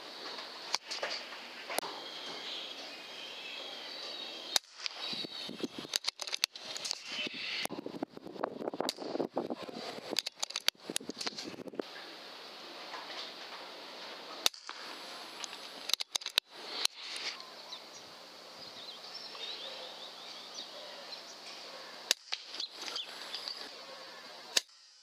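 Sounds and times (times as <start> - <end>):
steady outdoor hiss: 0.0 - 25.0
faint small birds chirping: 0.2 - 7.8, 14.3 - 24.6
air rifle cracks: 5.9 - 7.3, 14.4 - 17.0, 22.0 - 23.7.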